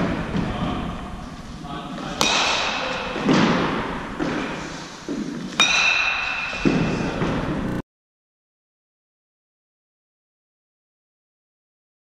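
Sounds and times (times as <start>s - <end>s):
bat striking ball with ringing ping: 2.2s - 2.9s, 5.6s - 6.7s.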